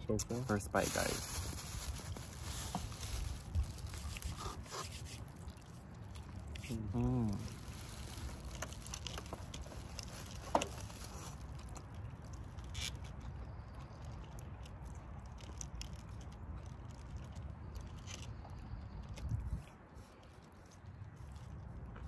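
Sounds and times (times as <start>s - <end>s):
person chewing: 4.0s - 7.7s, 11.1s - 22.0s.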